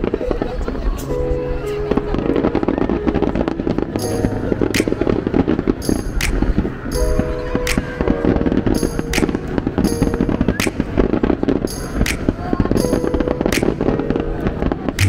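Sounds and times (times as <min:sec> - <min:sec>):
music playing: 0:00.0 - 0:15.0
fireworks bangs: 0:01.9 - 0:15.0
small fireworks pops: 0:01.9 - 0:15.0.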